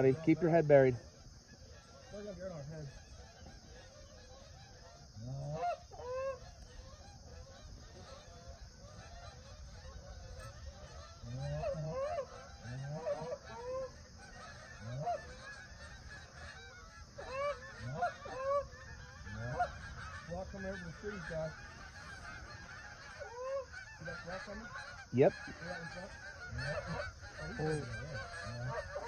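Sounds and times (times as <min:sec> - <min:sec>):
geese honking: 0:00.0 - 0:29.0.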